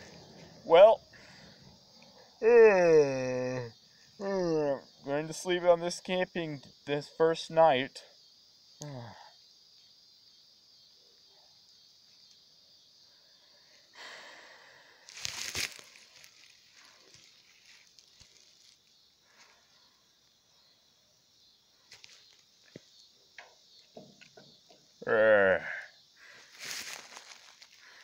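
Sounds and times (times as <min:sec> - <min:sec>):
grass rustling: 0:15.1 - 0:19.7, 0:26.2 - 0:28.0.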